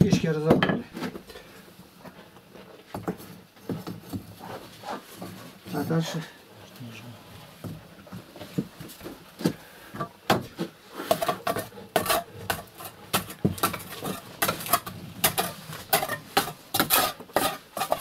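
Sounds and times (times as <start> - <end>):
scraping and clinking of brick fragments: 11.1 - 18.0.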